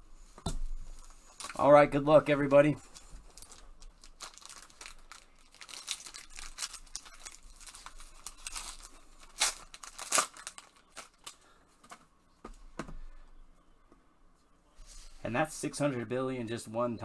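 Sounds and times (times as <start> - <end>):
foil wrapper crinkling: 2.5 - 11.5.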